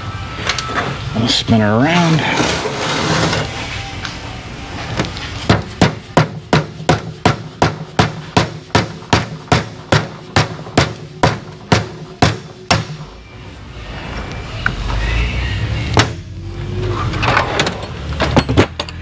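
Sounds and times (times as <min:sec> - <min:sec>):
hammer striking metal: 0:05.5 - 0:13.2.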